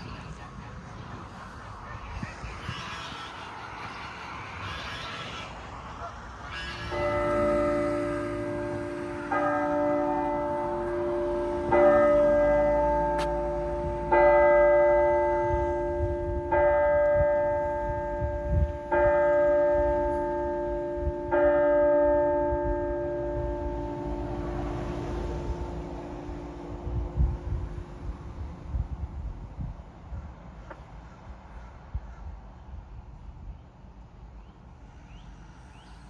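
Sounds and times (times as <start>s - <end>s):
bell tolling: 6.6s - 27.2s.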